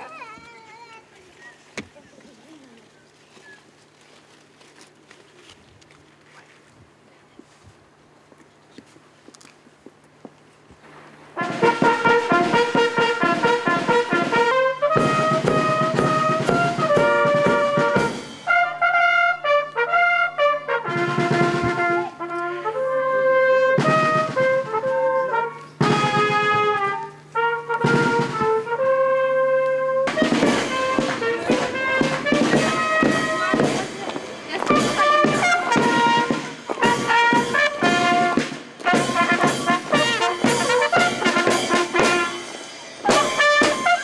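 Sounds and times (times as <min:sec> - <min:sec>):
brass band playing melody: 0:11.2 - 0:44.0
drumming: 0:11.4 - 0:44.0.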